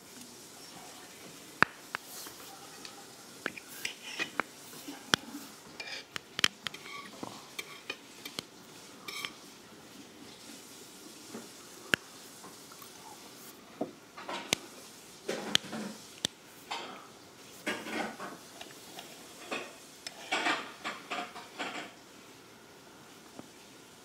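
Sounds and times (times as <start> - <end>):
knife and fork clinking on plate: 9.1 - 9.4.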